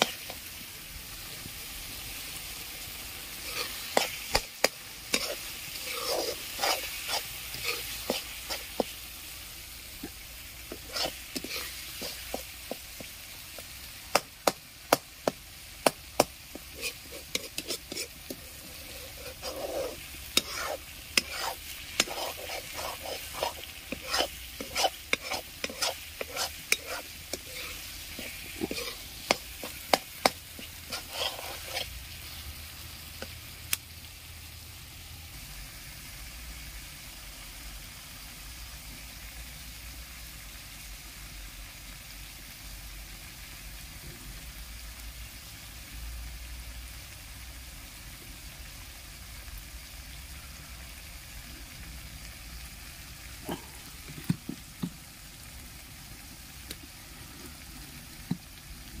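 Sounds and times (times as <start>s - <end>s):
food sizzling: 0.0s - 59.0s
metal spoon clinking and scraping pan: 3.4s - 9.0s, 10.0s - 32.0s.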